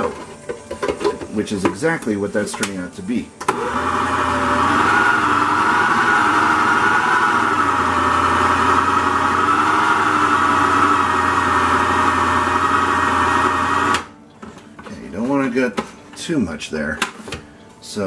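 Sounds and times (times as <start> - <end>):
food processor motor running: 3.5 - 14.1.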